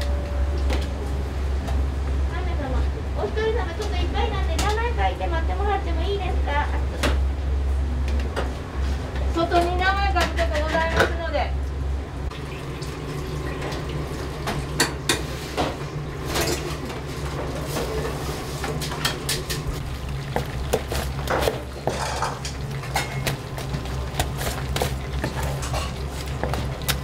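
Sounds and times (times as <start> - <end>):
steady low hum: 0.0 - 27.0
dishes and cutlery clattering: 21.4 - 23.3.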